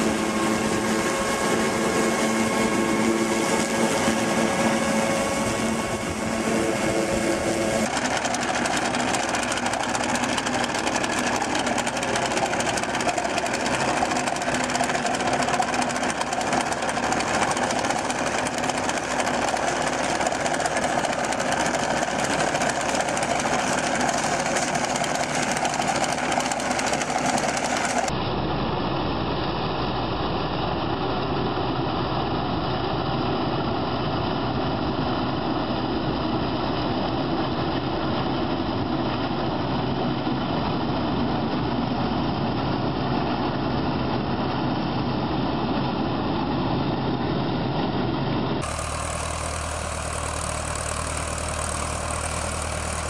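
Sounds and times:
farm machinery clattering: 7.4 - 28.1, 48.6 - 53.0.

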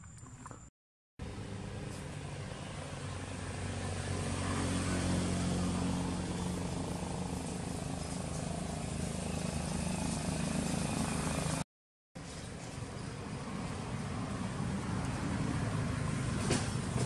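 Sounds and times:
low engine drone: 1.2 - 11.6.

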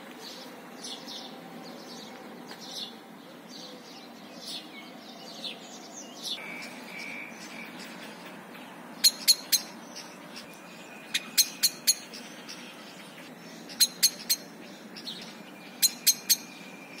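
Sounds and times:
blackbird chink calls: 6.0 - 17.0.

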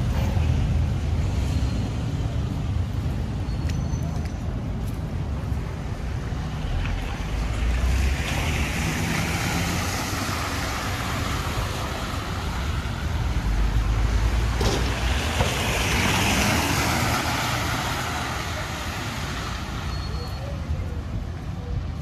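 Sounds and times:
tyres hissing on wet road: 15.0 - 20.0.

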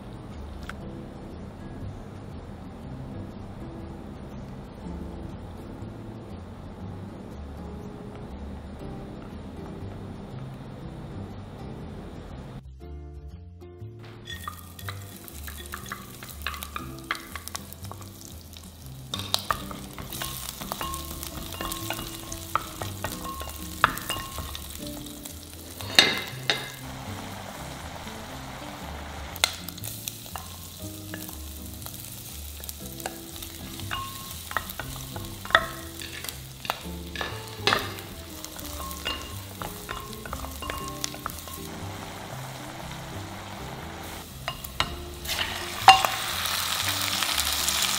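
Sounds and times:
shrimp sizzling in hot oil: 14.3 - 47.9.

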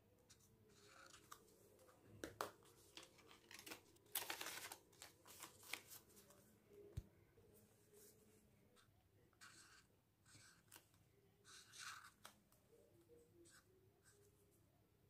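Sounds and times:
paper card rustling: 0.3 - 6.4.

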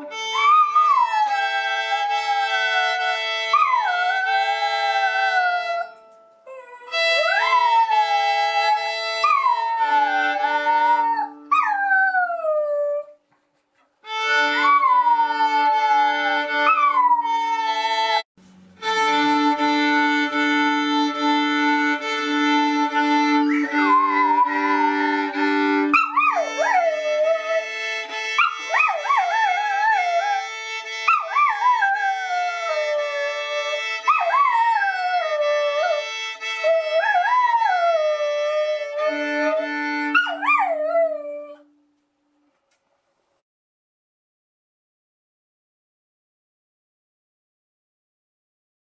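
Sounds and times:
dog howling: 0.0 - 5.9, 6.5 - 13.1, 14.4 - 18.2, 23.0 - 27.7, 31.1 - 36.0, 36.6 - 41.6
music with long held notes: 0.0 - 12.1, 14.0 - 42.4.

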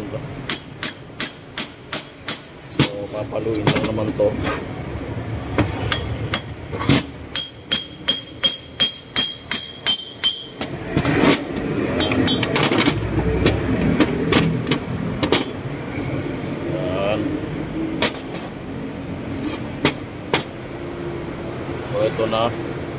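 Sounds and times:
metal parts clinking and rattling: 6.0 - 13.0, 18.0 - 18.6, 19.3 - 20.5
hammer tapping on metal: 7.3 - 10.8.

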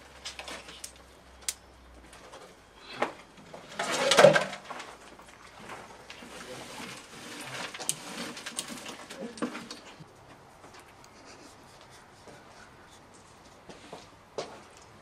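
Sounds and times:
coals clicking as they settle: 0.0 - 10.1
metal tool scraping charcoal: 6.0 - 10.0.

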